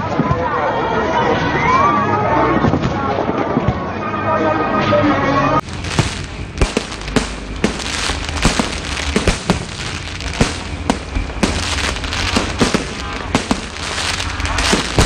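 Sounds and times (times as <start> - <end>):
fireworks bangs: 5.6 - 15.0
fireworks crackle and rumble: 5.6 - 15.0.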